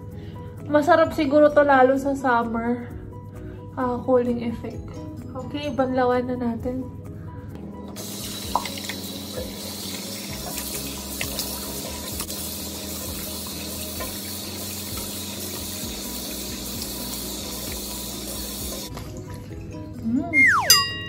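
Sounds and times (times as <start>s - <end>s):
tap water running into sink: 8.0s - 19.8s
hands splashing water: 9.9s - 12.3s.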